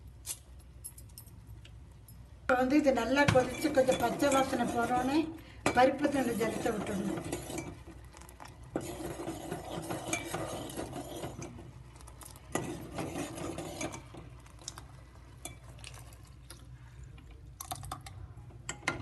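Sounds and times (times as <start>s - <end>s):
metal spoon stirring in pot: 3.1s - 16.7s
spoon clinking against pot: 8.8s - 11.5s.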